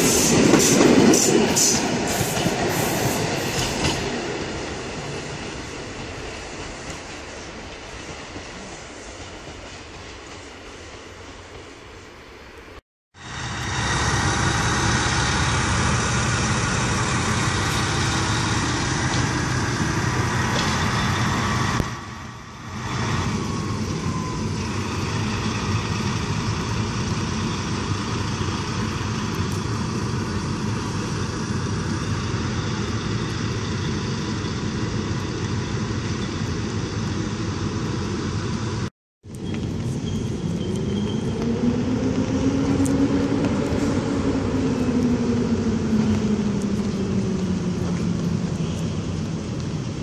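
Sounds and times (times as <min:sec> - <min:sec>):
diesel locomotive idling: 0:13.2 - 0:38.9.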